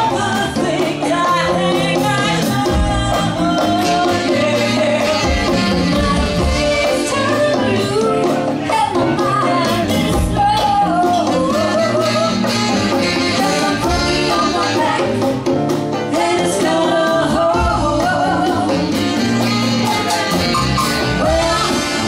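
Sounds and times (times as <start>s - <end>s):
funk band playing: 0.0s - 22.0s
woman singing: 0.0s - 22.0s.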